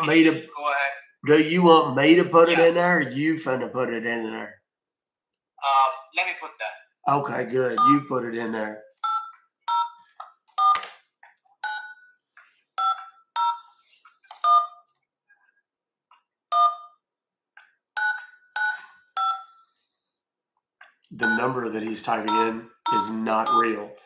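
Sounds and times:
phone keypad beeps: 0:07.8 - 0:08.1, 0:09.0 - 0:10.0, 0:11.6 - 0:12.0, 0:12.8 - 0:13.7, 0:18.0 - 0:19.6, 0:21.2 - 0:21.6, 0:22.2 - 0:23.8.

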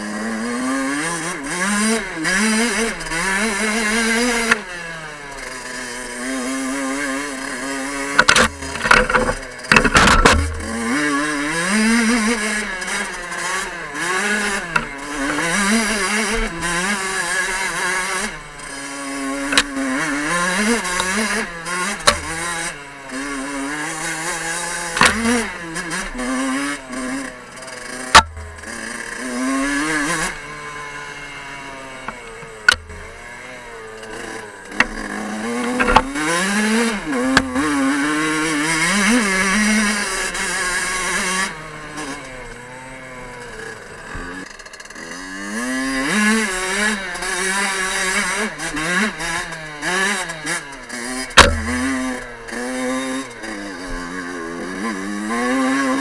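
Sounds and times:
two-stroke engine revving: 0:00.0 - 0:56.0
bike knocking over bumps: 0:08.2 - 0:11.0, 0:24.9 - 0:25.5, 0:34.7 - 0:36.4, 0:51.4 - 0:52.2.

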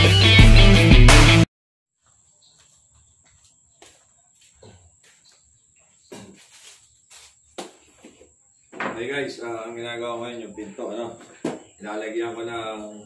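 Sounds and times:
tools knocking on wooden workbench: 0:07.6 - 0:09.0, 0:11.3 - 0:11.7.

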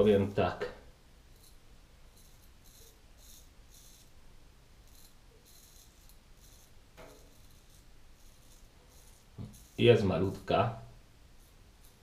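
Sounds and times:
razor scraping stubble: 0:01.3 - 0:04.2, 0:04.8 - 0:10.5, 0:11.3 - 0:12.0.

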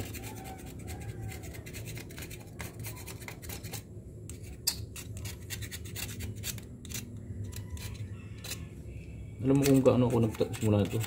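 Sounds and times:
gasket scraping on metal: 0:09.4 - 0:11.0.

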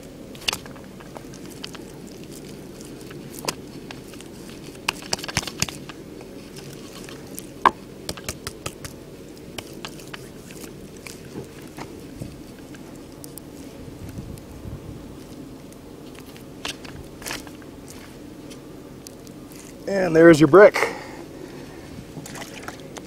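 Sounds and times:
low background noise: 0:00.0 - 0:23.0
wet clay slaps and knocks: 0:07.7 - 0:09.0.

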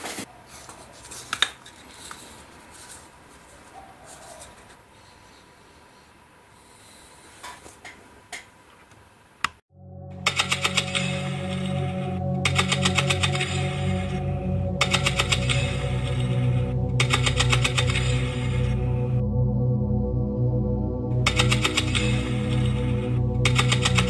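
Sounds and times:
music with a regular beat: 0:11.4 - 0:19.2, 0:21.2 - 0:24.0.

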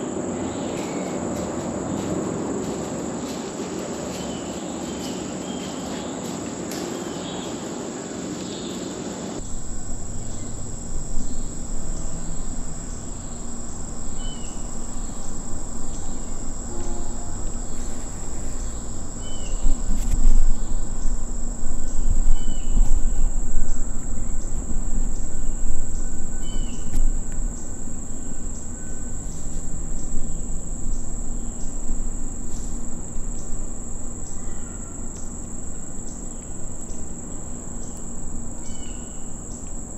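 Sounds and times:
crickets and insects droning: 0:00.0 - 0:39.9
bird chirping: 0:09.4 - 0:31.8
low rumbling and knocks: 0:09.4 - 0:33.2.

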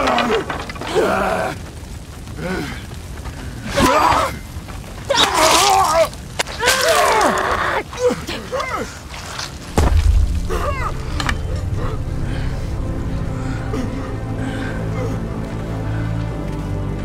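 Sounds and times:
strained cries and groans: 0:00.0 - 0:09.7
sharp impact: 0:09.7 - 0:12.2.

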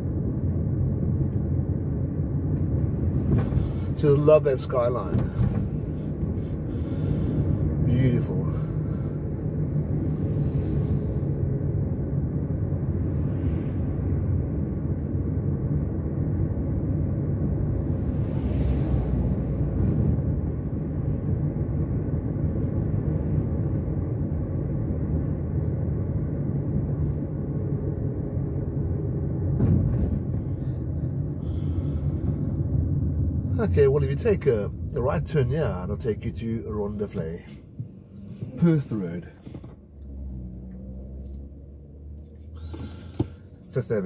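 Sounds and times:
car road and engine noise: 0:00.0 - 0:44.0.

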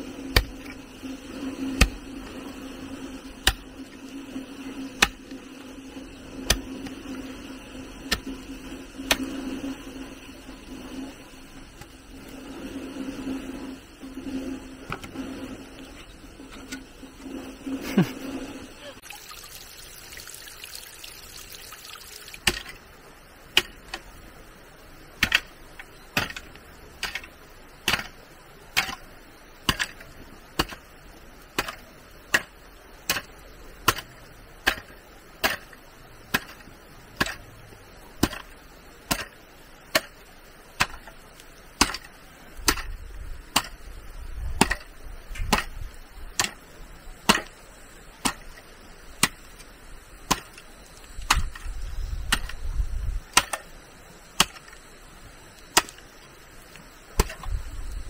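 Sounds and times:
hand tool chopping: 0:00.3 - 0:00.8, 0:01.7 - 0:02.1, 0:03.4 - 0:03.7, 0:05.0 - 0:05.3, 0:09.0 - 0:09.4, 0:25.2 - 0:25.5, 0:26.2 - 0:27.3, 0:27.9 - 0:28.2, 0:28.8 - 0:29.0, 0:29.7 - 0:30.0, 0:30.6 - 0:30.9, 0:31.6 - 0:32.5, 0:33.1 - 0:36.6, 0:37.2 - 0:37.4, 0:38.2 - 0:40.2, 0:40.8 - 0:41.2, 0:41.8 - 0:43.8, 0:44.6 - 0:45.8, 0:46.4 - 0:46.6, 0:47.3 - 0:47.5, 0:48.2 - 0:48.6, 0:49.2 - 0:49.4, 0:50.3 - 0:50.6, 0:53.3 - 0:53.6, 0:54.4 - 0:54.7, 0:55.7 - 0:56.0, 0:57.2 - 0:57.5.

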